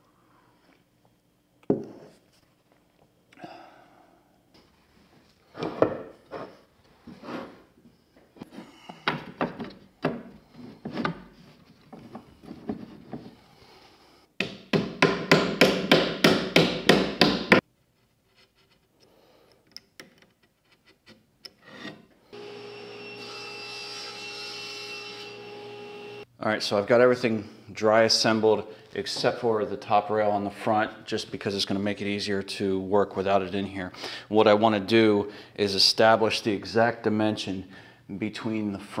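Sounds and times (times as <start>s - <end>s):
table saw motor humming: 22.4s - 26.2s.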